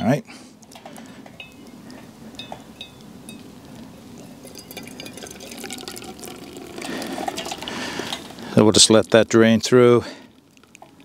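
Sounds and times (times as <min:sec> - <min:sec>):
water pouring into coffee filter: 0:04.4 - 0:09.3, 0:10.2 - 0:11.0.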